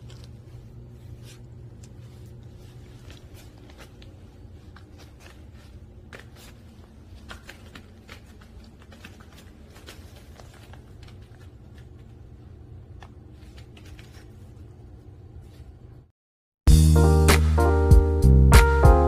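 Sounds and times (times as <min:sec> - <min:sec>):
puppy claws pattering on tiles: 0:00.0 - 0:12.1
low room hum: 0:00.0 - 0:16.1.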